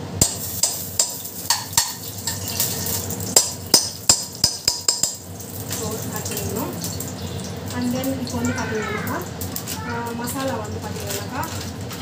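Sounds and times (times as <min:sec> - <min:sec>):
hot oil sizzling: 0:00.0 - 0:12.0
spoon clicks and fat popping: 0:00.2 - 0:05.8.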